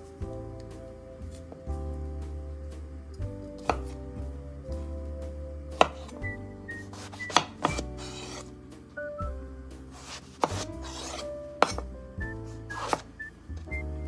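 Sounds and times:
soft background music: 0.0s - 14.0s
knife slicing on cutting board: 6.9s - 8.5s, 10.0s - 11.8s, 12.7s - 13.1s.

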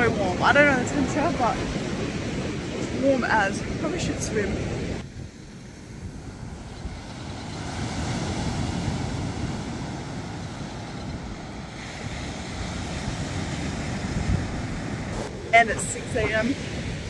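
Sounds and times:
ocean surf breaking on beach: 0.0s - 17.0s
wind buffeting microphone: 0.0s - 17.0s.

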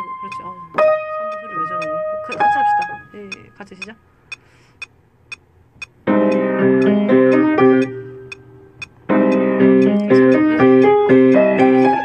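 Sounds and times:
piano chords: 0.0s - 3.9s, 6.0s - 12.0s
steady timing clicks: 0.2s - 0.5s, 1.3s - 12.0s.

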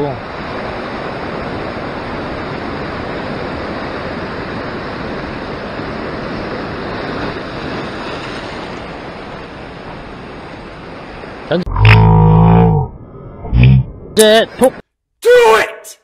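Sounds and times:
surf washing over rocks: 0.0s - 11.6s.

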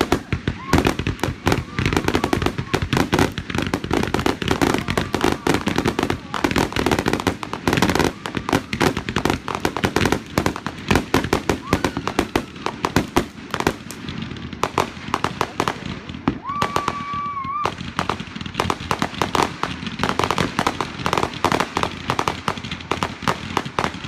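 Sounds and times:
firework whistle: 0.0s - 8.9s, 11.4s - 13.0s, 16.3s - 18.0s
fireworks popping and banging: 0.0s - 24.0s.

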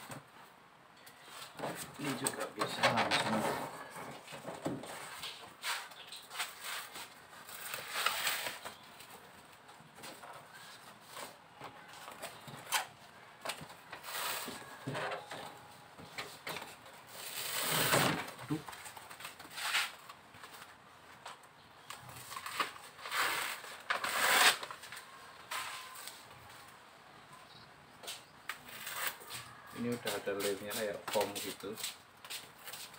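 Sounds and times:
foil sheet crinkling: 6.4s - 8.6s.

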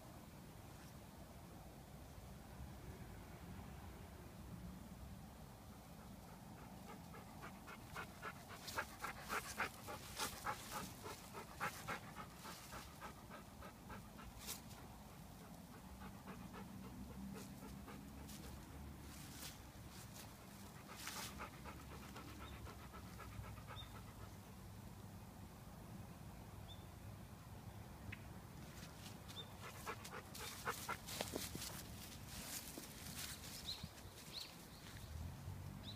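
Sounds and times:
dog panting: 6.0s - 18.9s, 20.2s - 24.5s, 29.6s - 31.9s.

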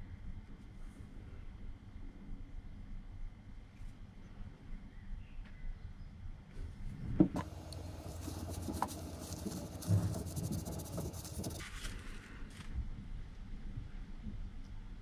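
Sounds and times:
cloth rubbing metal: 7.4s - 11.8s.

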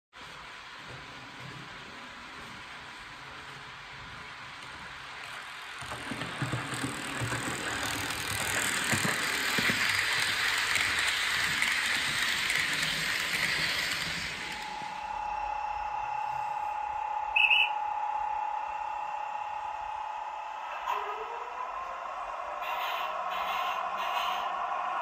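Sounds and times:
model train rattling on track: 4.9s - 14.7s.

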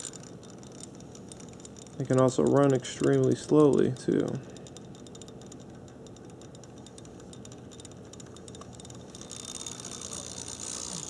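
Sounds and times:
high-pitched whirring: 0.0s - 0.3s, 7.7s - 11.0s
model train motor hum: 0.0s - 1.4s, 6.9s - 11.0s
rapid light ticking: 0.0s - 11.0s.

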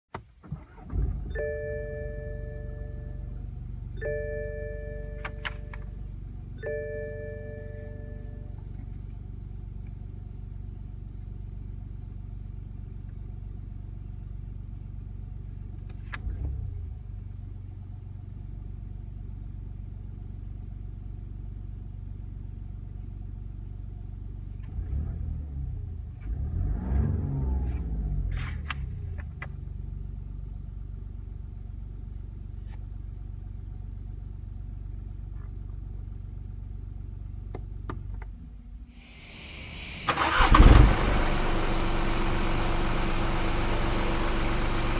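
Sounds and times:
diesel engine idling and revving: 0.6s - 44.9s.

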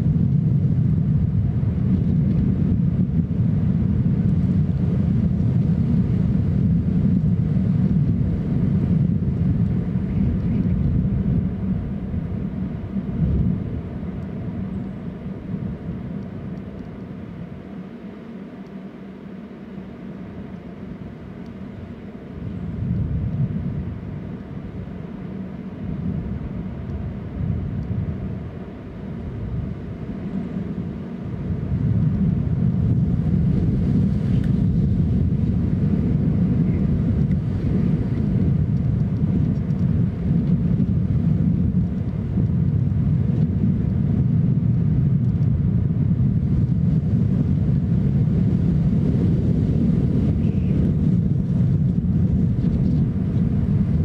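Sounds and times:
wind buffeting microphone: 0.0s - 17.8s, 20.4s - 54.0s.

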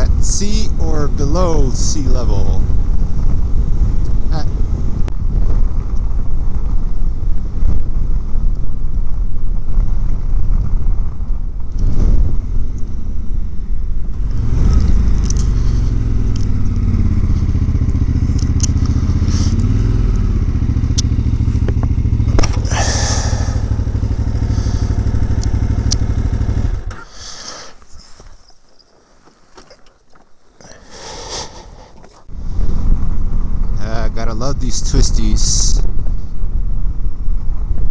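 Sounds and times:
wind rush on microphone: 0.0s - 26.9s, 32.2s - 37.9s
motorcycle engine drone: 0.0s - 37.9s
quiet rustle: 26.9s - 30.8s.

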